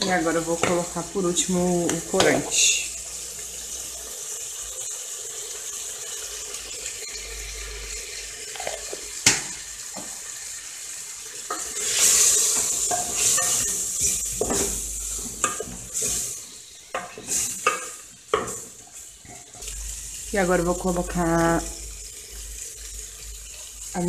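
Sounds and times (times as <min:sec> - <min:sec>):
meat sizzling in a pot: 0:00.0 - 0:24.0
spoon scraping and knocking pot: 0:08.5 - 0:10.1, 0:11.5 - 0:16.2, 0:16.9 - 0:19.6.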